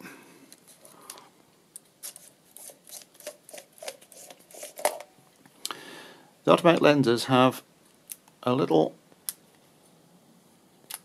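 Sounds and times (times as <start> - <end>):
camera lens clicks and scrapes: 2.0 - 5.1.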